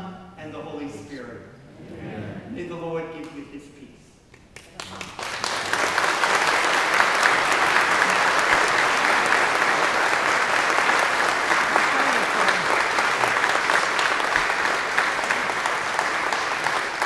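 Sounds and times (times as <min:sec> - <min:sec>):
crowd applauding: 0:04.6 - 0:17.0.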